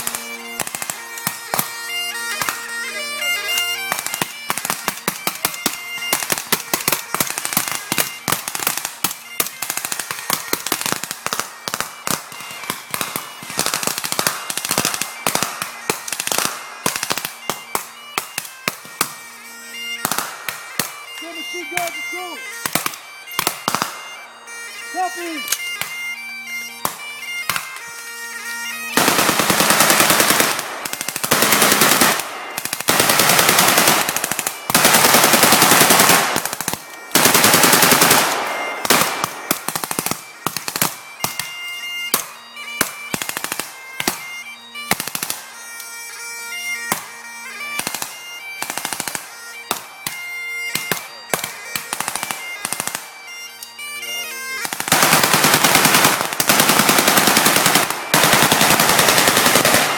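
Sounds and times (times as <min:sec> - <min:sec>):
bagpipes playing: 0:00.0 - 0:59.9
automatic gunfire bursts: 0:29.0 - 0:39.9, 0:54.6 - 0:59.9
single gunshots: 0:38.2 - 0:39.6.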